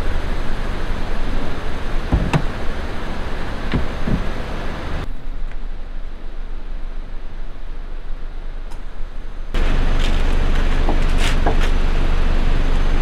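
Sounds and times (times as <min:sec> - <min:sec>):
short knocks: 0:02.1 - 0:02.5.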